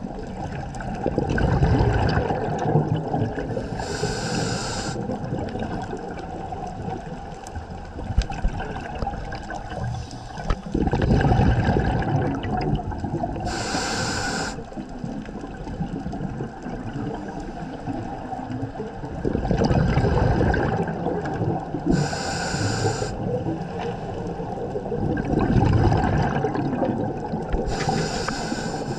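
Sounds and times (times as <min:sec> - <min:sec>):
exhaled air bubbling underwater: 0:00.0 - 0:28.9
regulator inhale hiss: 0:03.5 - 0:05.2, 0:09.8 - 0:10.8, 0:13.4 - 0:14.8, 0:21.9 - 0:23.3, 0:27.6 - 0:28.9.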